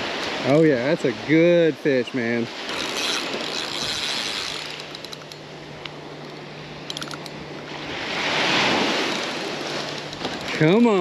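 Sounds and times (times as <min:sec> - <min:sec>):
surf washing in: 0:00.0 - 0:04.9, 0:05.5 - 0:11.0
fishing reel gear whir: 0:02.1 - 0:11.0
reel light clicks: 0:09.0 - 0:11.0.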